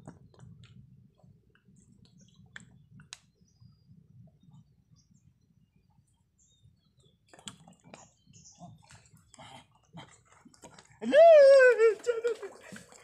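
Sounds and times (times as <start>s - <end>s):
small water splashes: 7.2s - 13.0s.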